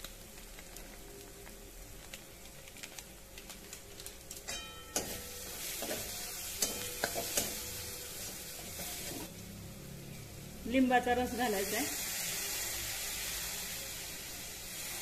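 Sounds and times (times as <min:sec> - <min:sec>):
food sizzling in oil: 0:00.0 - 0:15.0
metal spatula scraping a pan: 0:04.5 - 0:09.3.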